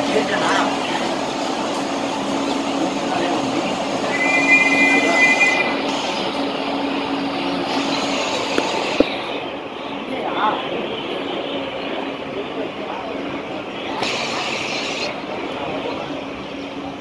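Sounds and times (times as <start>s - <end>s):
train coach rumbling: 0.0s - 17.0s
high-pitched squeal: 4.0s - 5.9s.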